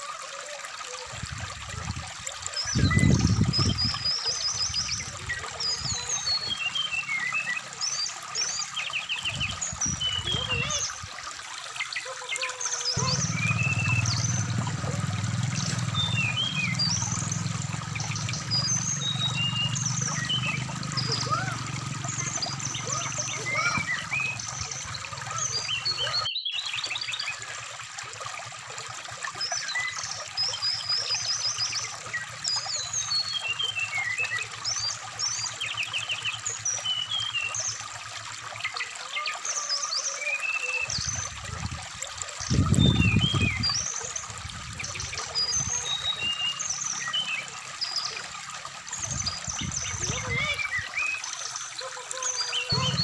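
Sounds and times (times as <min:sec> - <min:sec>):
low rush of water: 0:00.0 - 0:53.0
stream trickling over rocks: 0:00.0 - 0:53.0
bird chirping and trilling: 0:02.6 - 0:11.0, 0:11.8 - 0:27.5, 0:42.4 - 0:48.3, 0:48.9 - 0:53.0.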